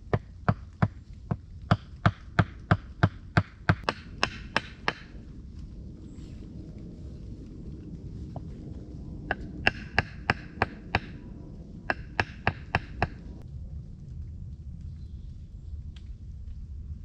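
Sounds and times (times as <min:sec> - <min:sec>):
hammer knocking on wood: 0:00.1 - 0:05.1, 0:09.6 - 0:11.1, 0:11.9 - 0:13.2.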